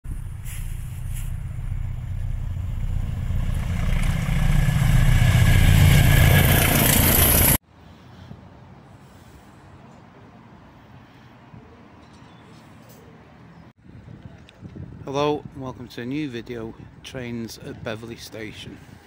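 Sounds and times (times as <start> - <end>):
diesel locomotive engine rumble: 0.0 - 11.0
train rail noise: 0.1 - 7.6.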